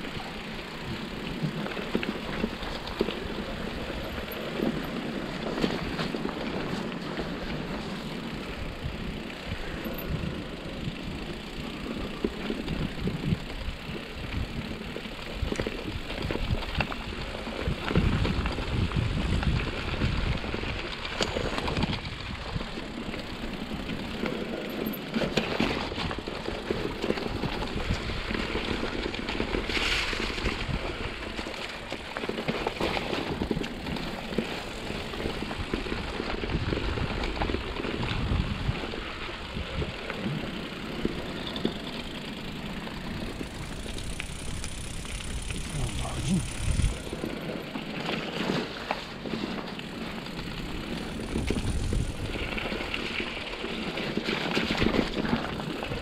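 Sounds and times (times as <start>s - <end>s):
bike rattles and clicks: 0.0s - 56.0s
bike tyre rumble: 0.0s - 56.0s
wind buffeting microphone: 12.6s - 23.9s, 33.4s - 41.7s, 42.7s - 47.3s, 50.2s - 53.6s.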